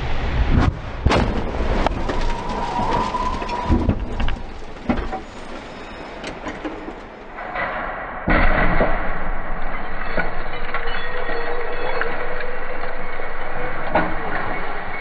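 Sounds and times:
car crash bangs and crunches: 0.5 - 7.4.

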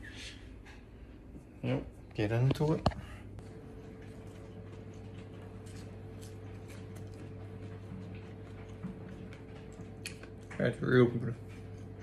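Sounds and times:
low electrical hum: 0.0 - 12.0
person chewing crunchy food: 3.4 - 10.6.

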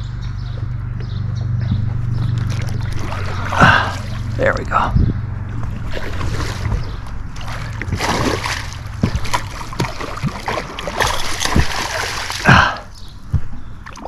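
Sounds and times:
fish splashing at water surface: 2.3 - 4.4, 5.5 - 12.8.

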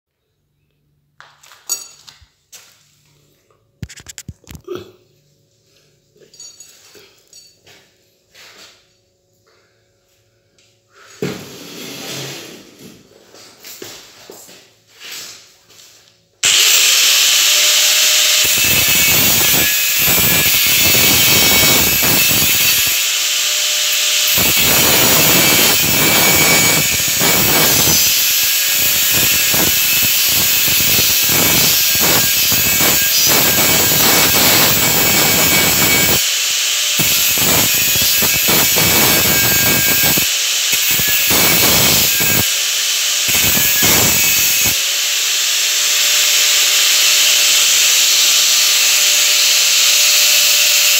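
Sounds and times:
angle grinder grinding metal: 16.4 - 50.9.

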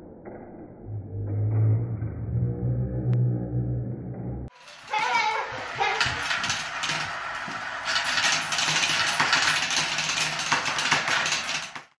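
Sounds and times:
marbles clicking down plastic tubes: 4.5 - 11.9.

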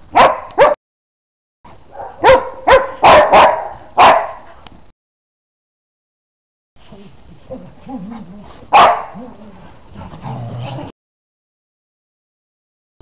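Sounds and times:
dogs barking: 0.1 - 0.8, 1.9 - 4.5, 8.7 - 9.5.

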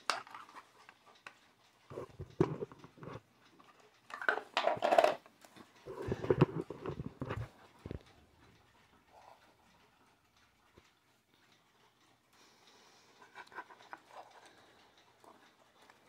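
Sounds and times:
plastic clock clicking and scraping: 0.0 - 16.0
clock set down on wooden floor: 4.2 - 5.2.

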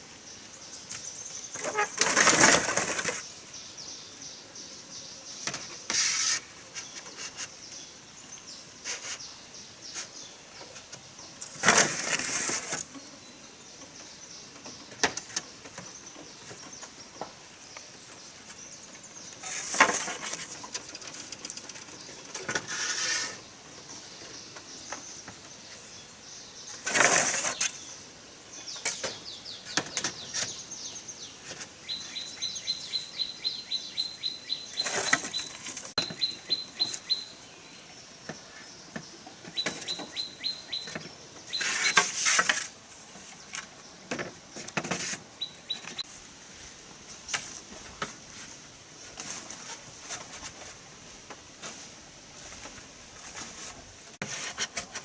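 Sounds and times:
steady high hiss: 0.0 - 55.0
rustling or scraping bursts: 1.5 - 3.4, 5.6 - 7.6, 8.8 - 9.3, 10.8 - 12.9, 19.3 - 23.5, 26.7 - 27.8, 34.7 - 37.0, 41.5 - 43.7, 44.5 - 55.0.

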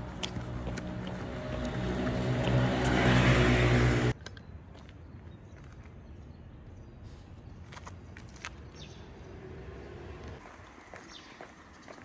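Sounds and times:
vehicle engine humming: 0.0 - 4.2.

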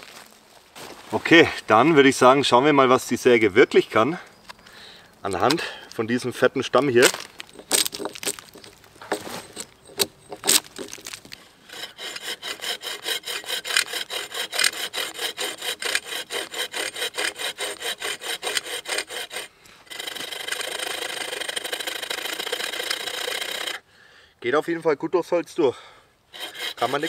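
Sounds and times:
bow saw cutting log: 7.0 - 23.8, 26.3 - 27.0.

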